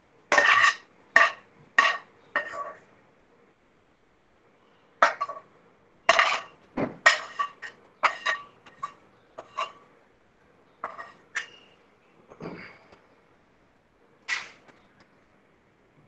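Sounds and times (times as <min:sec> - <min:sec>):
spatula scraping and knocking pan: 0:00.3 - 0:02.8, 0:05.0 - 0:05.5, 0:06.1 - 0:09.9, 0:10.8 - 0:11.7.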